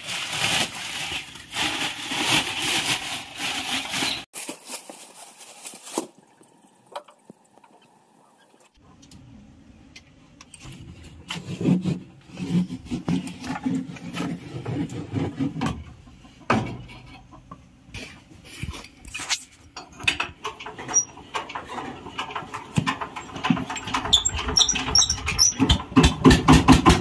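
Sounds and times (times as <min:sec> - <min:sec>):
hand tools knocking on metal and wood: 0:19.8 - 0:27.0.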